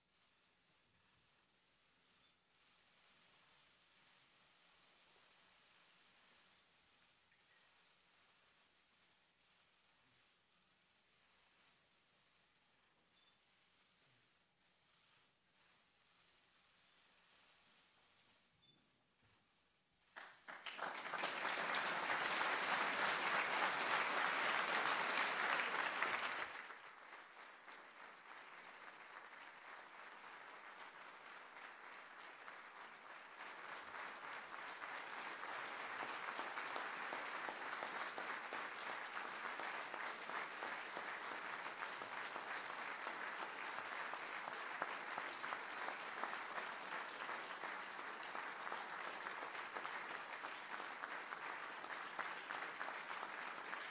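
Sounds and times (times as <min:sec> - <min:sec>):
audience applauding: 0:20.1 - 0:53.9.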